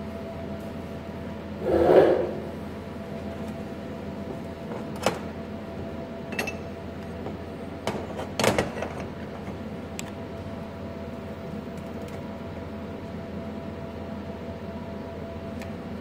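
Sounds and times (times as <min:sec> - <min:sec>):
steady machine hum: 0:01.1 - 0:04.7.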